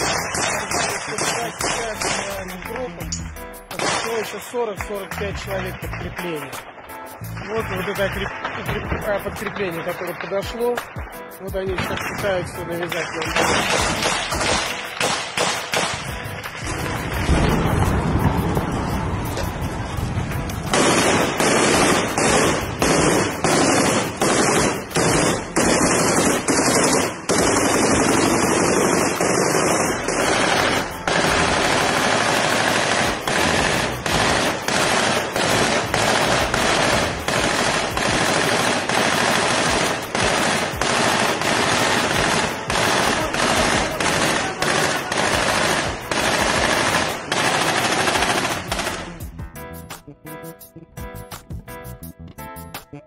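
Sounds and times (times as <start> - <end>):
machine-gun bursts: 0.0 - 2.8, 3.7 - 6.6, 11.6 - 17.7, 20.7 - 49.2.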